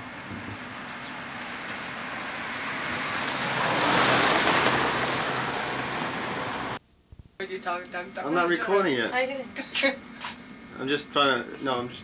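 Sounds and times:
road vehicle passing by: 0.0s - 6.8s.

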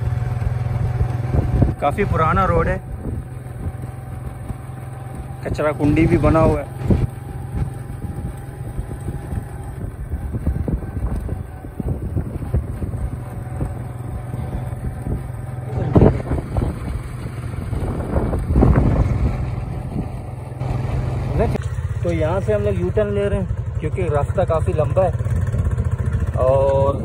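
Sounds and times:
wind rumble on microphone: 0.0s - 20.6s
vehicle engine and road noise: 0.0s - 27.0s.

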